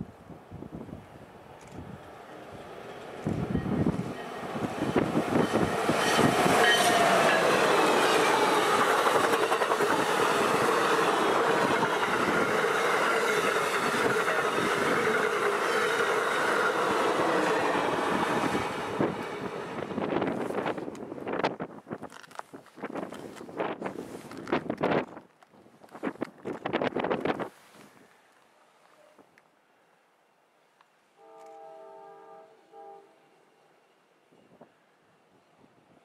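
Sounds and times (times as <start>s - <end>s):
train passing at speed: 0.5s - 21.7s
wheels on rail and clattering coaches: 0.8s - 27.5s.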